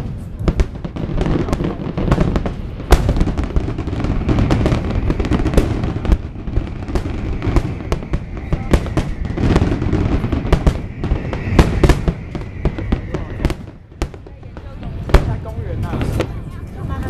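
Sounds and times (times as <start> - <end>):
fireworks bursting: 0.0 - 17.0
low rumble: 1.4 - 17.0.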